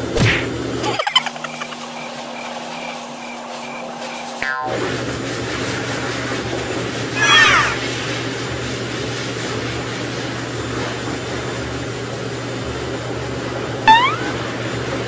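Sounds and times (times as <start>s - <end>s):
short rising whine: 7.2s - 8.0s, 13.9s - 14.6s.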